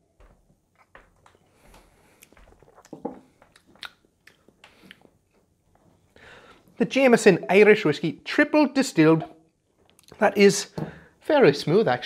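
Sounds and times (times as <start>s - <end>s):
sipping and swallowing: 2.2s - 5.2s
wet mouth sounds: 2.2s - 5.2s.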